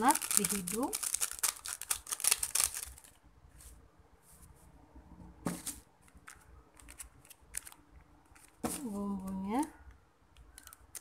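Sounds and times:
foil sachet crinkling: 0:00.0 - 0:03.2.

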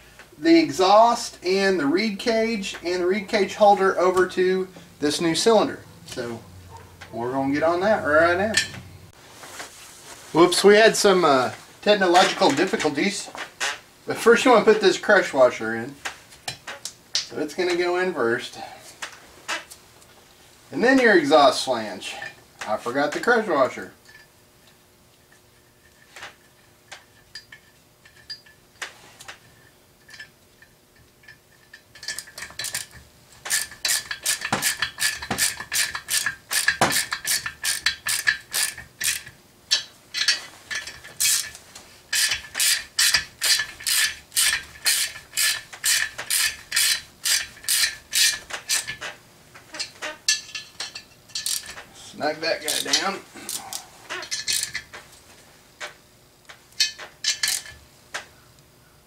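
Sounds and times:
clinks of parts and tools: 0:08.3 - 0:08.9, 0:24.0 - 0:24.4, 0:25.3 - 0:51.9, 0:52.6 - 0:55.0, 0:55.8 - 0:57.8
socket ratchet clicking: 0:32.0 - 0:49.0, 0:54.2 - 0:54.8.

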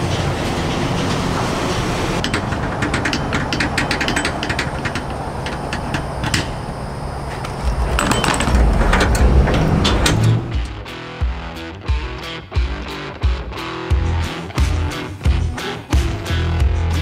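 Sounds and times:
low rumble: 0:06.7 - 0:10.9.

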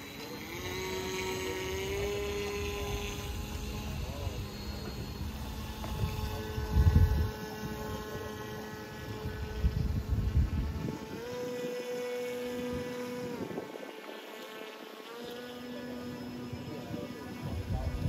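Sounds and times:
model boat motor whining: 0:00.0 - 0:18.0
wind rumbling on microphone: 0:01.6 - 0:14.3, 0:16.4 - 0:18.0.

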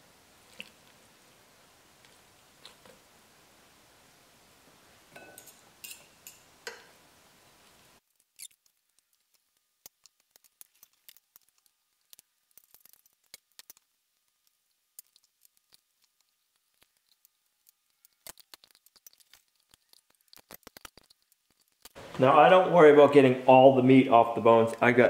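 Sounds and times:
steady background hiss: 0:00.0 - 0:25.0
light scattered ticks: 0:07.6 - 0:22.0
chicken being pulled off bones: 0:08.1 - 0:22.0.

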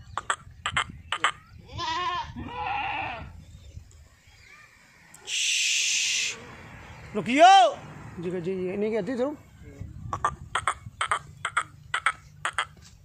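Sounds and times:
goat bleating: 0:01.6 - 0:03.3
loud hissing noise: 0:05.0 - 0:06.5.

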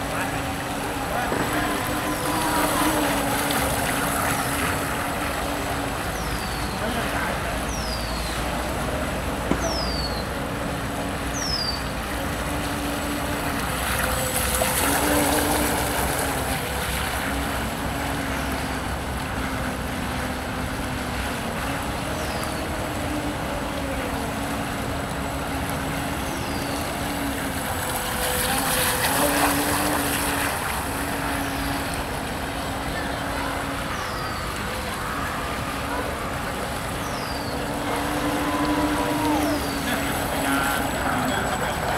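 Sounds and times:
wind: 0:00.0 - 0:41.9
electric motor humming: 0:12.1 - 0:33.9.

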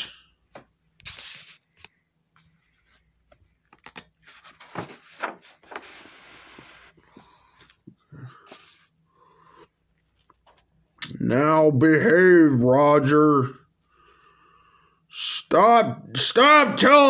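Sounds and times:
paper rustling and scraping: 0:01.0 - 0:07.2.

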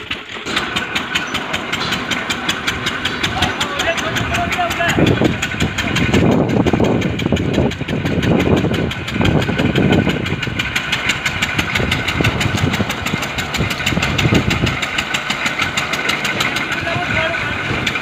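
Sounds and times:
engine running steadily: 0:00.0 - 0:18.0.

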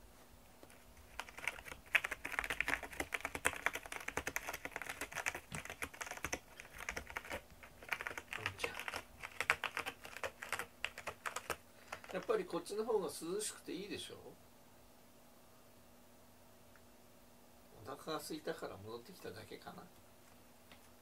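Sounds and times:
cat scratching cardboard: 0:00.7 - 0:12.3.

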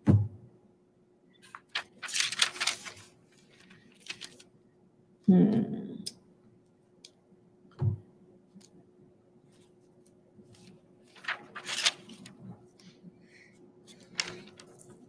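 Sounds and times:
faint steady hum: 0:00.1 - 0:15.0
paper and leaves rustling: 0:01.4 - 0:04.4, 0:10.5 - 0:12.4, 0:13.9 - 0:15.0.

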